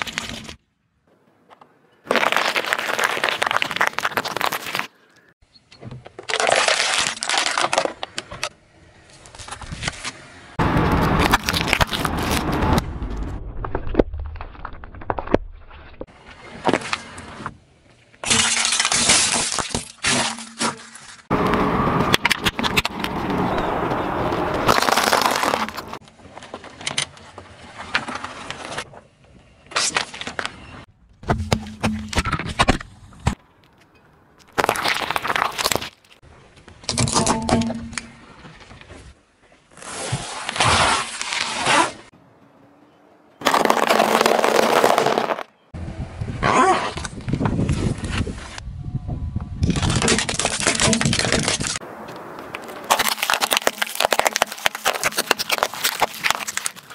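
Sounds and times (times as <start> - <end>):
tyre crushing brittle objects: 2.0 - 5.0, 6.1 - 8.5, 9.2 - 12.8, 18.2 - 23.5, 24.3 - 27.1, 34.4 - 36.2, 36.8 - 38.2, 43.4 - 45.5, 49.6 - 56.9.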